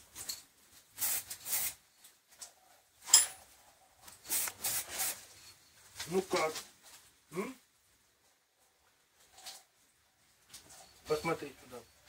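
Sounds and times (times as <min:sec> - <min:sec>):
spray can hissing: 0:01.0 - 0:01.8, 0:04.2 - 0:05.2.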